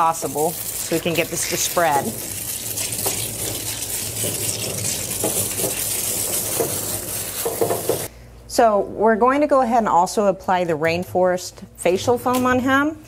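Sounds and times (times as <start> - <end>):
water hissing from hand sprayer: 0.0 - 8.1.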